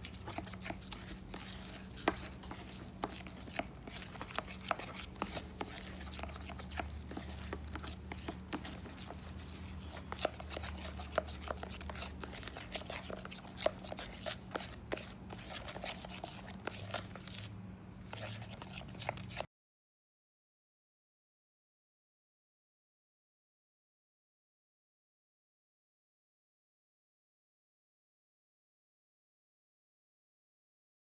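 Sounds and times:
spoon stirring batter in bowl: 0:00.0 - 0:19.5.

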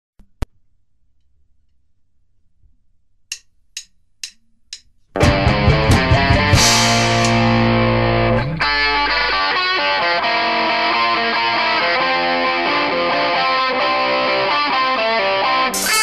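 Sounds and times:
distorted electric guitar riff: 0:05.2 - 0:16.0
cymbal crash: 0:06.5 - 0:07.8.

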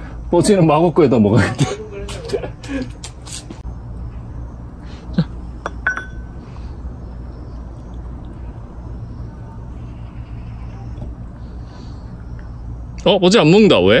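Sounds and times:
ceramic bowl clinking: 0:05.6 - 0:06.4.

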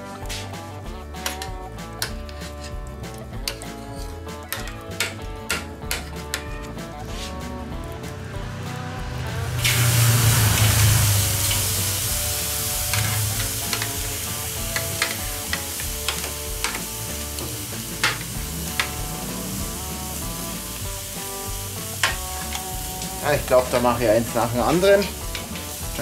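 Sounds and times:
background music: 0:00.0 - 0:26.0
steak sizzling on grill: 0:00.2 - 0:26.0
fat popping and crackling: 0:12.8 - 0:21.0.

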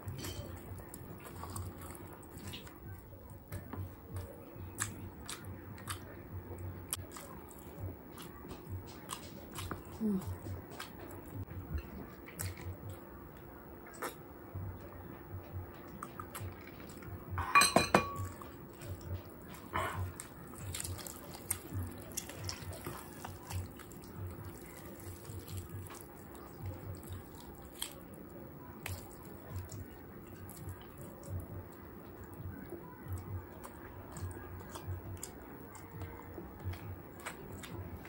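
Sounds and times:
glass mug clinking: 0:17.4 - 0:18.3
wet tearing of roast chicken: 0:19.9 - 0:30.8.

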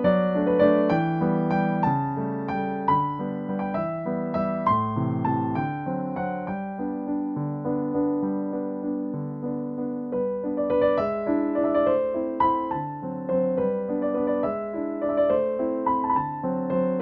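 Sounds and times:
light piano melody: 0:00.0 - 0:17.0.

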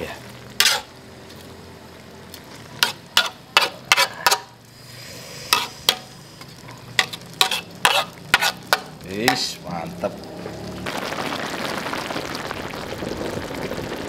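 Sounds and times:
pan sizzling: 0:00.0 - 0:14.0
metal spatula scraping a wok: 0:00.6 - 0:00.9, 0:02.6 - 0:09.6.

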